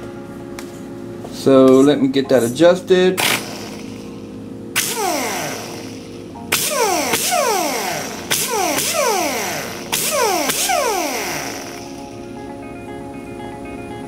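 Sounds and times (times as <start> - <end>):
air grinder whining: 3.2 - 12.1.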